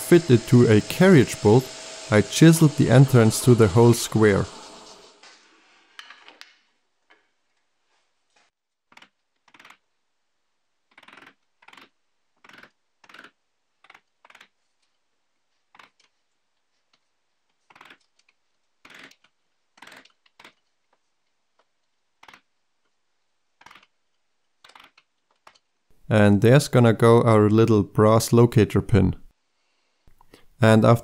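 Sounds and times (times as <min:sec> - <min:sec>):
chisel cutting wood: 0:00.0 - 0:05.3.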